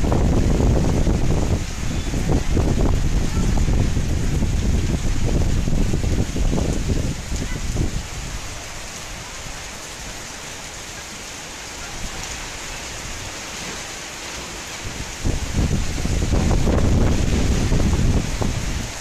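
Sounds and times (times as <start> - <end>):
wind buffeting microphone: 0.0 - 10.0, 14.8 - 19.0
heavy rain hissing: 0.0 - 19.0.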